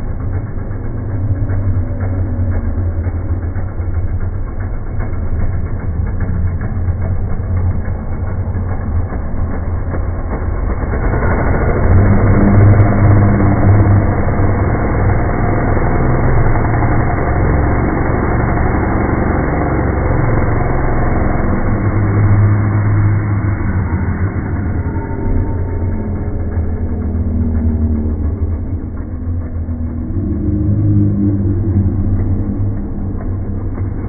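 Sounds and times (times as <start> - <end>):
chainsaw running: 0.0 - 34.0.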